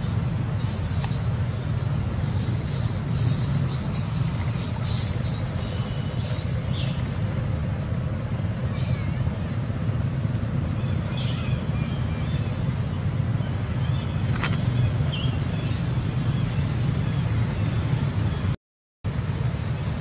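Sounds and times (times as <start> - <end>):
steady low rumble: 0.0 - 20.0
high-pitched animal squeals: 8.6 - 9.5.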